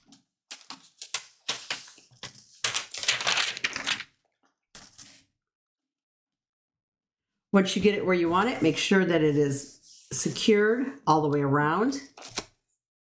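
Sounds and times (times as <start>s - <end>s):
paper rustling and crackling: 0.0s - 4.2s, 4.8s - 5.3s.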